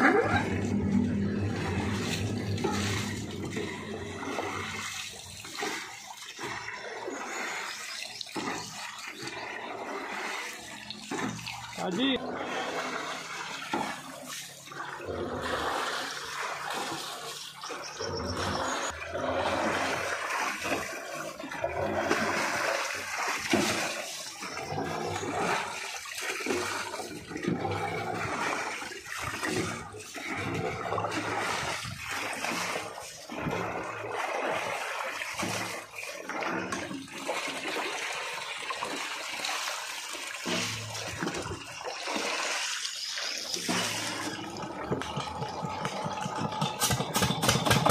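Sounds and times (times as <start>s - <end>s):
water pouring and gurgling: 0.0s - 47.9s.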